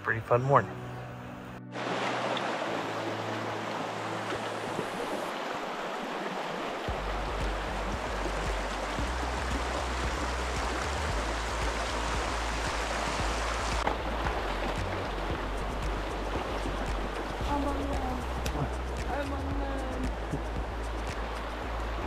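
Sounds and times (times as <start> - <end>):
stream rushing over stones: 1.7 - 22.0
low rumble: 6.9 - 22.0.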